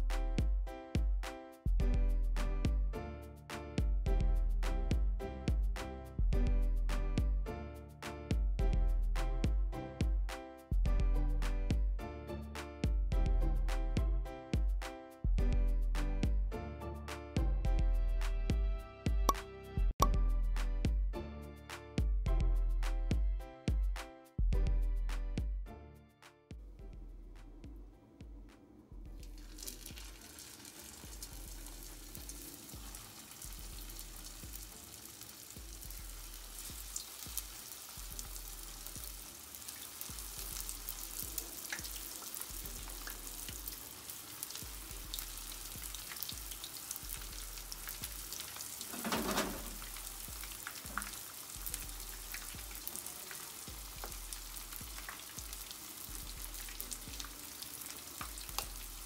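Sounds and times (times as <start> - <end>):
food sizzling in hot oil: 29.2 - 59.0.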